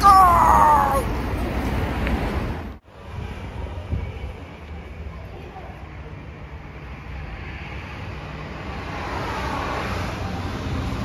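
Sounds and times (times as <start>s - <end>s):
wind rumble on microphone: 1.1s - 5.3s
passing vehicle tyres and engine: 6.4s - 11.0s.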